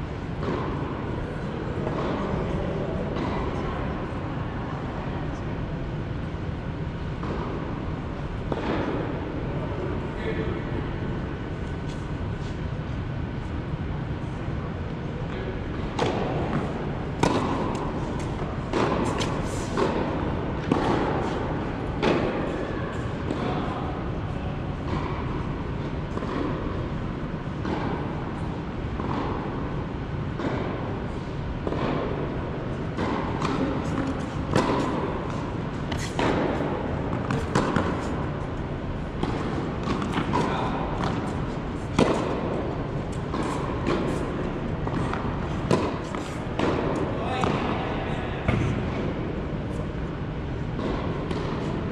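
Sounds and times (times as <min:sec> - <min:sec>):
steady low hum: 0:00.0 - 0:51.9
racquets hitting tennis ball: 0:00.3 - 0:03.6, 0:15.3 - 0:51.9
ball bouncing: 0:39.2 - 0:47.8, 0:48.5 - 0:49.0.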